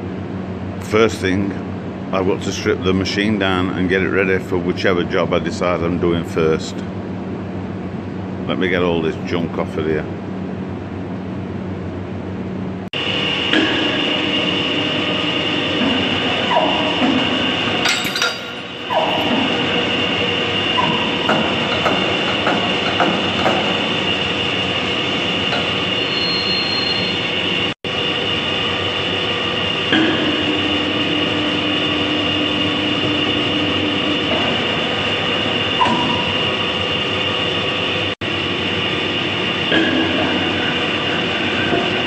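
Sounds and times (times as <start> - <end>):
machinery running: 12.9 - 42.0
metal clinks and knocks: 17.9 - 19.3.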